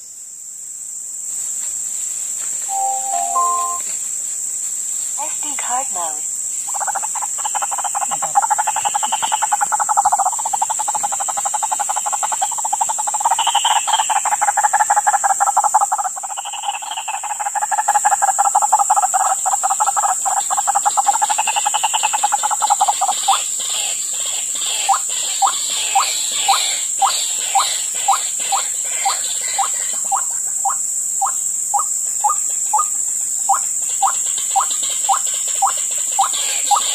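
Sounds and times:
high-pitched hum: 2.7s - 3.9s
waterhens croaking: 24.6s - 32.9s, 33.5s - 36.9s.

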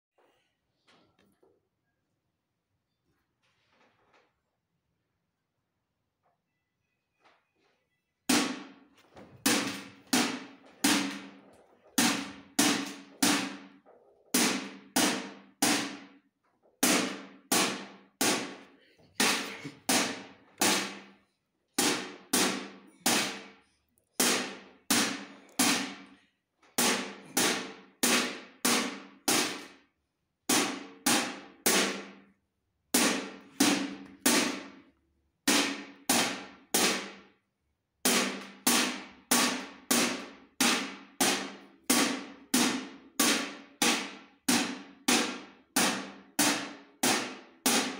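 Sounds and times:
drumstick beating metal tin: 12.0s - 13.6s, 21.8s - 23.5s, 24.2s - 26.1s, 26.8s - 29.7s.

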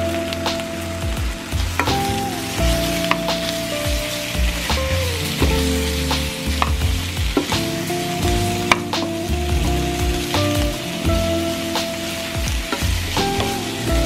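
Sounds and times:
meat and onion sizzling: 0.0s - 14.0s.

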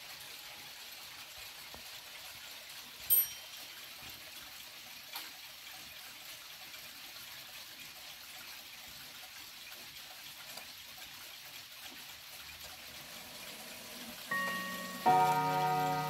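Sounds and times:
steady hiss: 13.0s - 16.0s.

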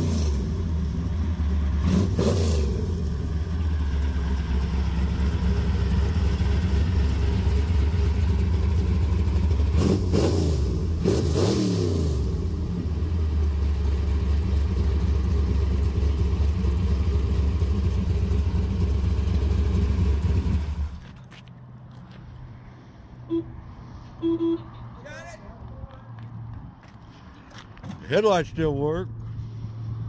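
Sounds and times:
engine idling with lope: 0.0s - 11.0s, 12.2s - 21.4s
engine revving: 0.0s - 13.4s.

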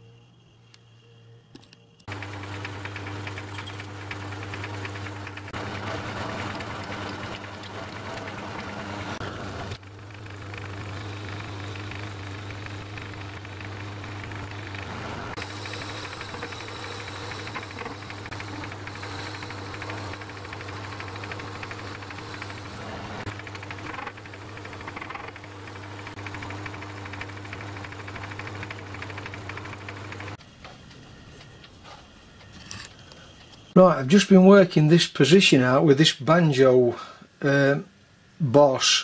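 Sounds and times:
metalworking lathe running: 2.1s - 30.4s
high hiss: 15.4s - 22.8s.

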